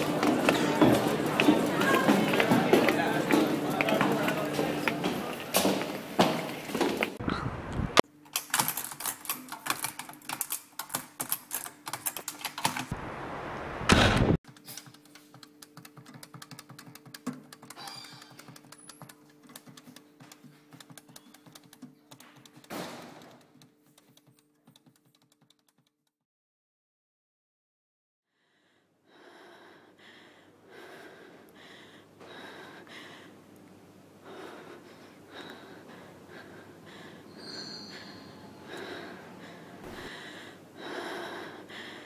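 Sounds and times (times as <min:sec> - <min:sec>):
rapid irregular clicking: 0:08.3 - 0:12.9, 0:14.5 - 0:26.1
loud burst of noise: 0:12.9 - 0:14.4.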